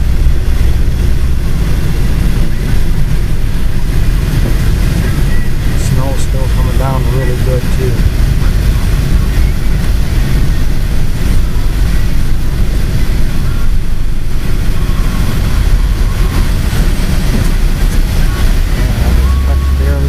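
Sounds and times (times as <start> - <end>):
vehicle engine and tyres rumbling: 0.0 - 20.0.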